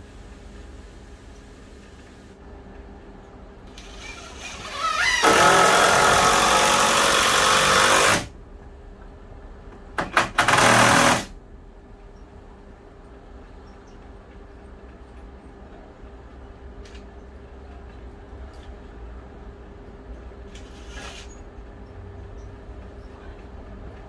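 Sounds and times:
cordless drill driving screws: 0:03.8 - 0:08.3, 0:10.4 - 0:11.3.

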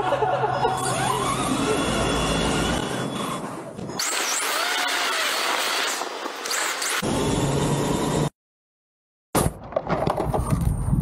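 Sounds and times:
rc car motor whine: 0:00.6 - 0:08.3.

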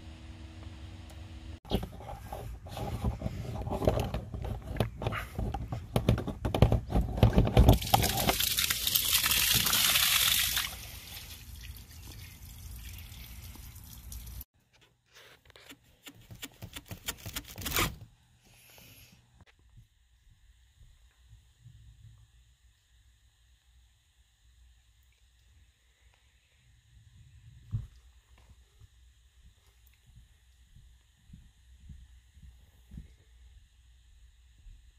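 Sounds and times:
water gushing and splashing: 0:07.7 - 0:14.4.

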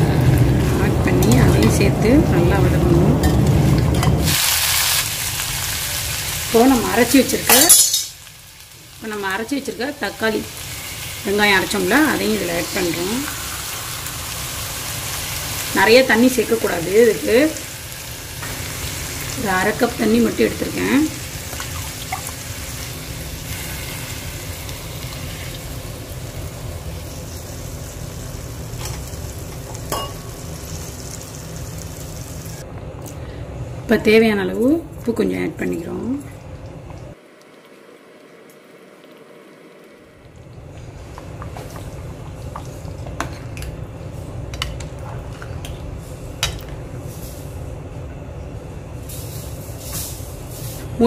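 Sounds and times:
low rumble from stove: 0:00.0 - 0:51.0
food sizzling in a pot: 0:03.3 - 0:32.6
metal spoon clinking against pot: 0:07.5 - 0:08.2.

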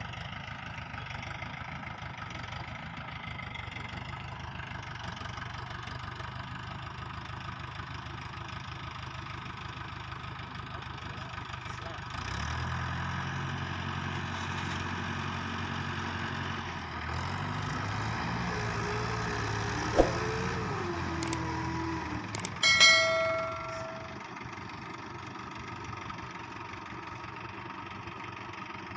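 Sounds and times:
tractor diesel engines running: 0:00.0 - 0:28.9
sharp metallic clang: 0:22.4 - 0:24.2.

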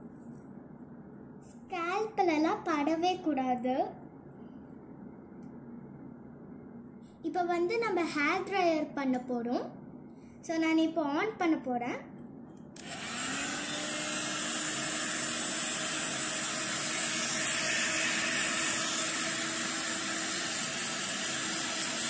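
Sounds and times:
hair dryer blowing: 0:12.8 - 0:22.0.

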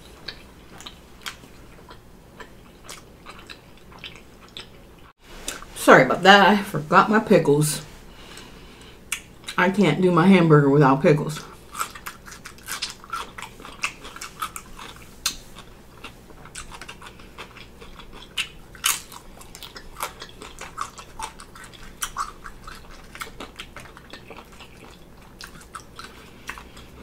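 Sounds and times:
person chewing crunchy food: 0:00.0 - 0:05.7, 0:11.5 - 0:27.0.

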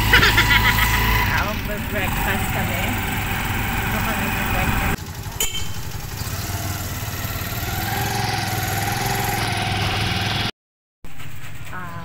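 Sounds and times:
motorcycle engine running: 0:00.0 - 0:10.5
road noise: 0:00.0 - 0:10.5.

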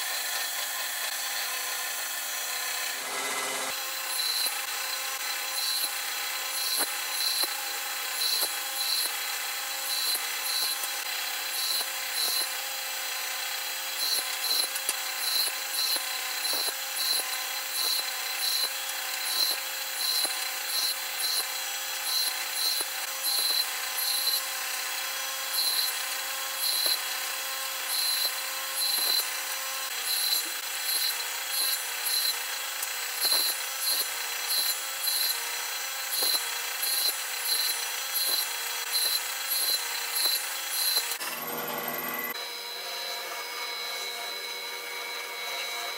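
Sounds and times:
saw cutting wood: 0:00.0 - 0:45.9
table saw running: 0:00.0 - 0:45.9.

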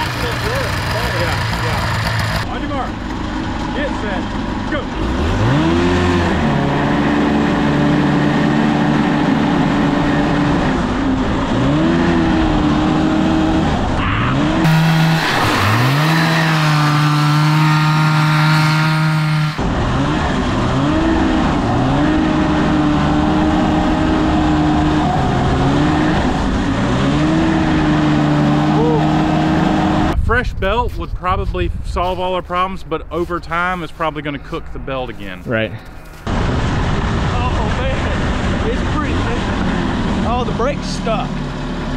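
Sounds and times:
two-stroke engine revving: 0:00.0 - 0:30.2, 0:36.3 - 0:41.9
wind noise on microphone: 0:30.1 - 0:33.0.

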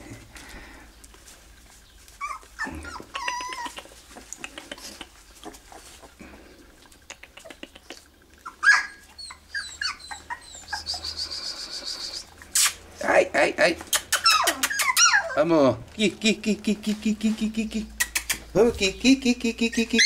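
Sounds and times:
puppies whining and squealing: 0:02.0 - 0:06.2, 0:08.0 - 0:12.4, 0:13.8 - 0:15.6, 0:19.7 - 0:20.0.

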